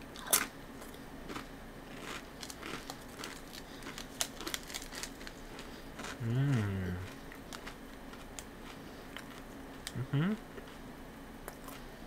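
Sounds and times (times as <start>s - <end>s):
rice cracker crunching: 0.2s - 10.0s
plastic wrapper crinkling: 2.4s - 5.5s.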